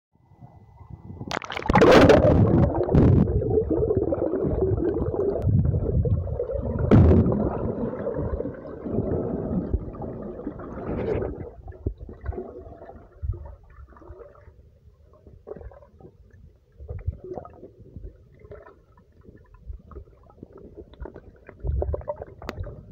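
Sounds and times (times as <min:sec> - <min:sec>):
muffled underwater gurgling: 0:01.2 - 0:14.6.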